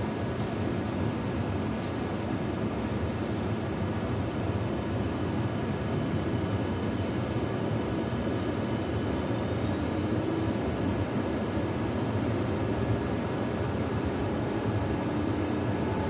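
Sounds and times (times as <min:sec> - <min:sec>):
tram wheels rumbling on rails: 0:09.6 - 0:16.0.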